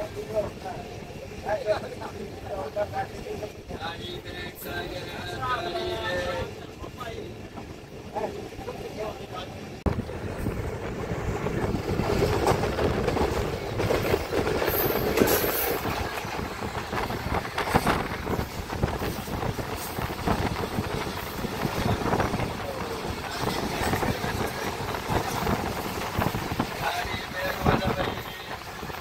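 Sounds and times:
train wheels rumbling on track: 0:00.0 - 0:29.0
rail joint clicks and knocks: 0:09.9 - 0:29.0.

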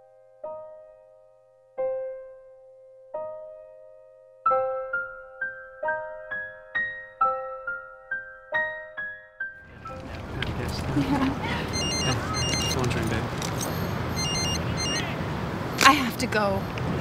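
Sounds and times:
solo piano music: 0:00.0 - 0:10.7.

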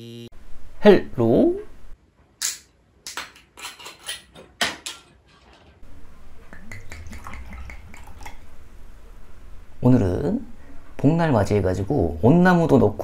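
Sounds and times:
tableware clinking: 0:03.2 - 0:05.8
low steady hum: 0:05.8 - 0:13.0.

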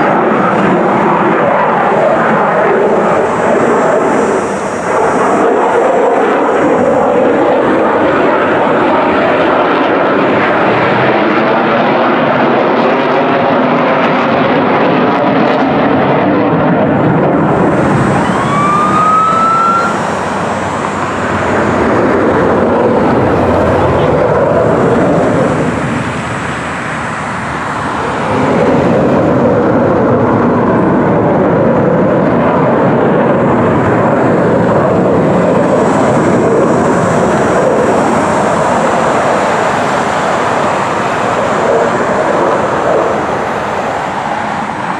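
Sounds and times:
jet engine roar: 0:00.0 - 0:44.9
rising whistle: 0:17.4 - 0:23.6.

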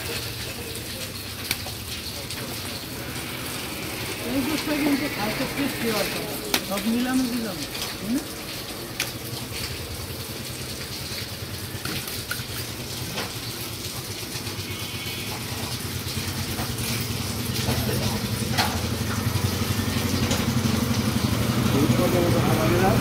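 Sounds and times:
vehicle engine running: 0:16.1 - 0:23.0.

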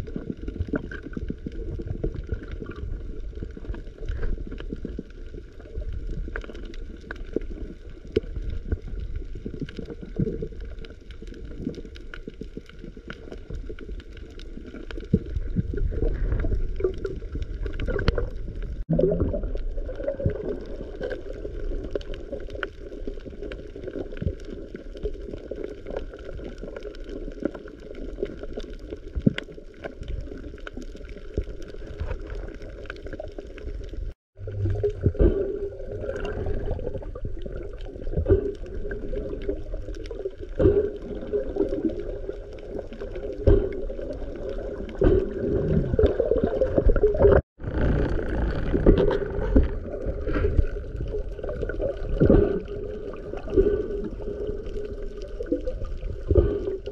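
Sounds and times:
water gurgling and sloshing: 0:00.0 - 0:56.9
continuous low rumble: 0:33.9 - 0:41.3, 0:47.6 - 0:56.9.

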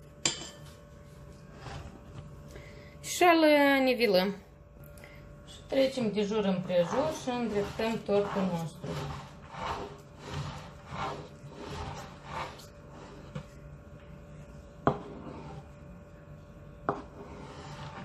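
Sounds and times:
scraper smoothing cream on cake: 0:01.4 - 0:02.2, 0:05.7 - 0:16.2, 0:16.8 - 0:18.0.

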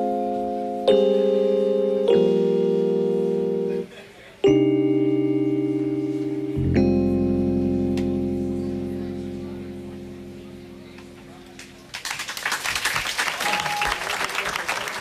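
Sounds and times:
electric piano chords: 0:00.0 - 0:11.9
low bass note: 0:05.5 - 0:11.9.

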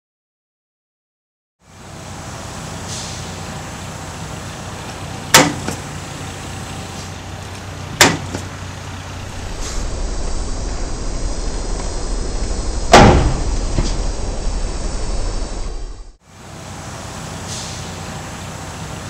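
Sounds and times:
pickup engine running: 0:03.4 - 0:16.2
heavy low rumble: 0:05.9 - 0:16.2.

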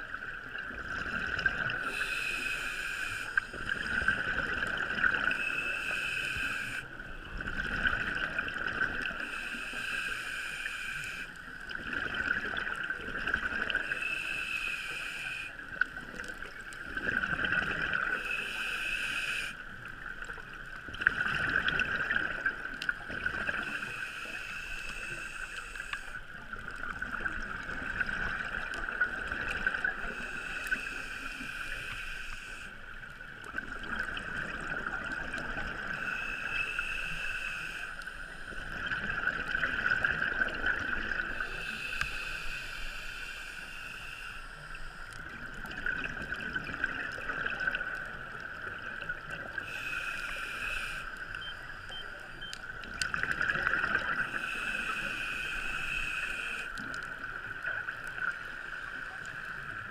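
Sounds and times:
diver breathing through regulator: 0:01.8 - 0:04.1, 0:05.2 - 0:06.9, 0:09.1 - 0:11.4, 0:13.8 - 0:15.6, 0:18.0 - 0:19.6, 0:23.5 - 0:26.2, 0:29.9 - 0:32.8, 0:35.8 - 0:38.6, 0:41.2 - 0:45.0, 0:49.5 - 0:51.3, 0:54.0 - 0:57.0.

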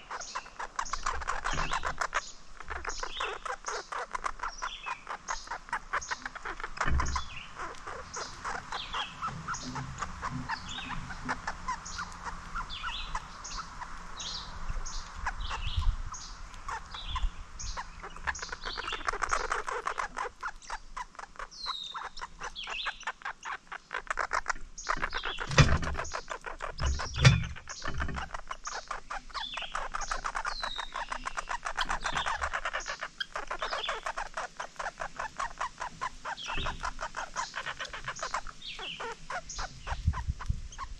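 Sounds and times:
fast rattling bird trill: 0:00.0 - 0:40.9
songbirds chirping: 0:00.0 - 0:40.9.

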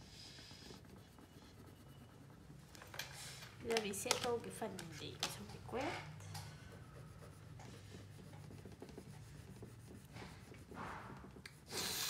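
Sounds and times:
wax crayon scribbling on paper: 0:00.0 - 0:02.6, 0:06.6 - 0:12.0.

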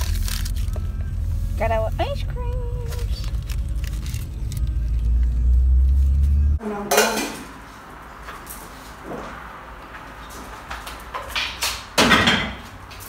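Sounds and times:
road rumble inside car: 0:00.0 - 0:06.6.

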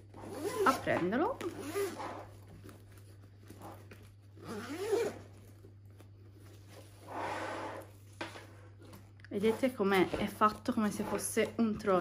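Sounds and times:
backpack zipper being pulled open: 0:00.2 - 0:00.8, 0:01.4 - 0:02.3, 0:04.4 - 0:05.3.

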